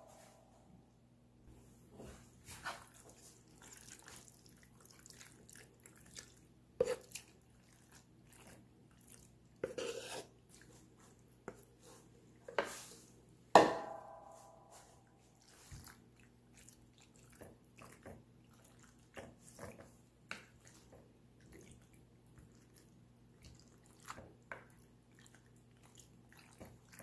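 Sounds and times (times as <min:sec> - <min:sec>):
wet plops of pasta: 0:02.6 - 0:09.4
spoon knocking on glass dish: 0:13.6 - 0:14.3.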